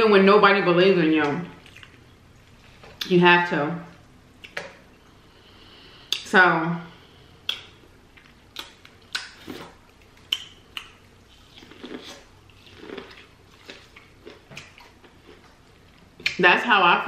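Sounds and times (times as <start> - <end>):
wet chewing: 1.5 - 3.1, 7.4 - 16.4.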